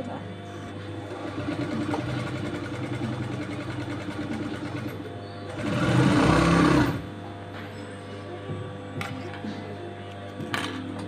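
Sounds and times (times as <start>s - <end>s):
sewing machine stitching: 1.1s - 7.0s.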